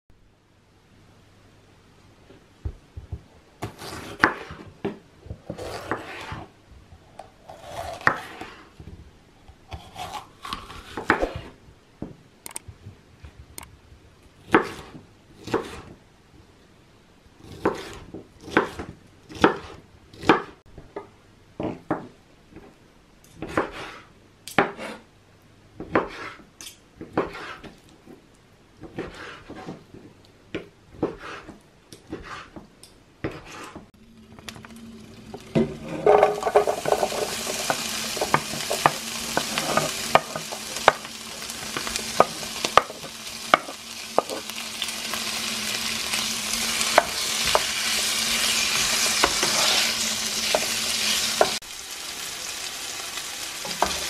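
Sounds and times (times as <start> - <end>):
knife scraping slices: 3.6 - 4.7, 5.5 - 6.5, 7.4 - 8.7, 9.7 - 11.6, 27.2 - 27.7, 46.8 - 51.5.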